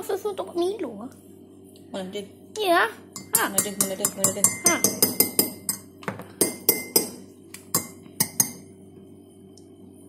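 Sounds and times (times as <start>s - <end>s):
metal teaspoon clinking: 3.2s - 8.6s.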